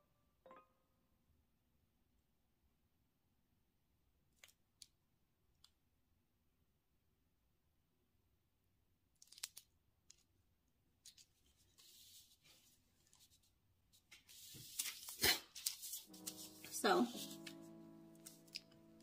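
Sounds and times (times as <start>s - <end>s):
parchment paper crinkling: 9.2s - 10.3s, 11.0s - 19.0s.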